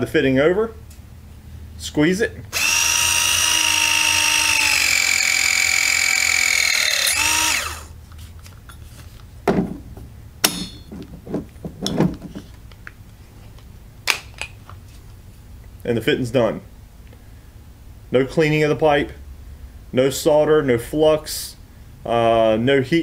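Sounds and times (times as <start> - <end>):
press tool motor whining: 2.5 - 8.0
handling clicks and knocks: 9.4 - 14.8.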